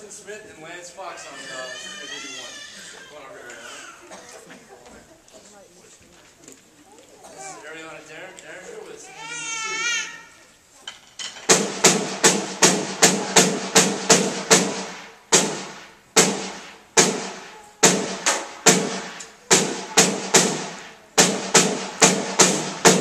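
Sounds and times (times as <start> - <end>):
snare drum strokes: 11.3 - 23.0.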